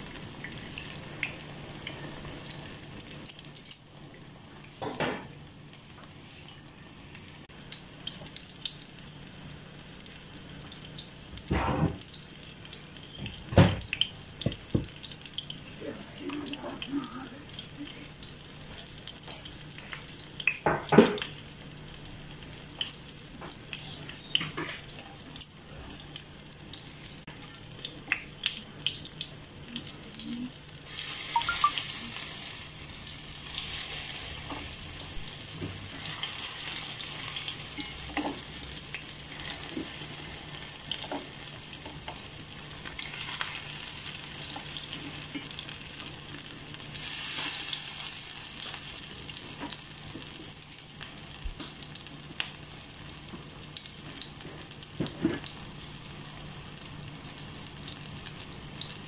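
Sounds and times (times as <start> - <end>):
fritters sizzling in hot oil: 0.0 - 59.0.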